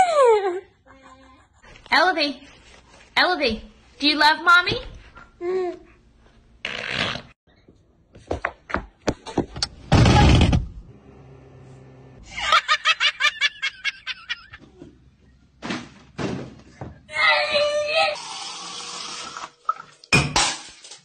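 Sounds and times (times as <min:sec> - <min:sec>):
woman laughing hard: 0:12.3 - 0:14.6.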